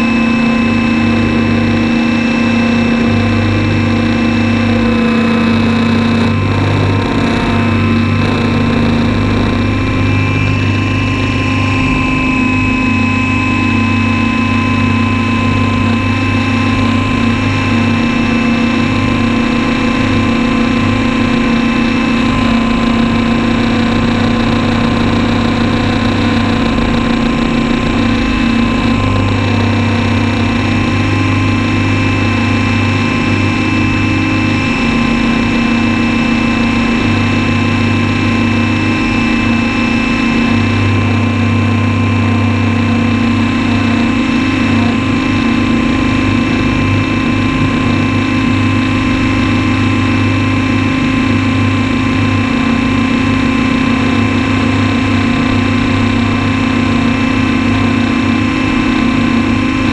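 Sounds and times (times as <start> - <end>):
model helicopter motor drone: 0.0 - 59.9.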